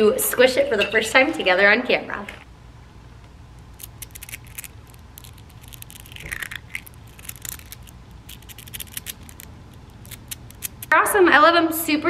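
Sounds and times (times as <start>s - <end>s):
magnetic beads clicking and rattling: 3.6s - 10.9s.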